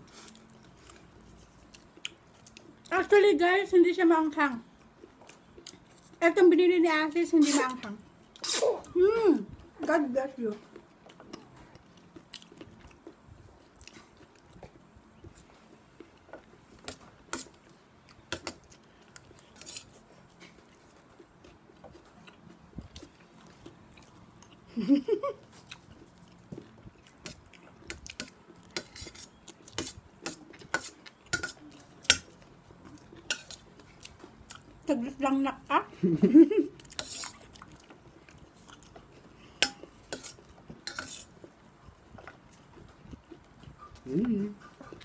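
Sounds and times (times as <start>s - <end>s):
metal spoon scraping a plate: 28.8s - 32.2s, 37.0s - 37.3s, 39.6s - 41.3s
metal spoons scraping plates: 39.6s - 41.3s.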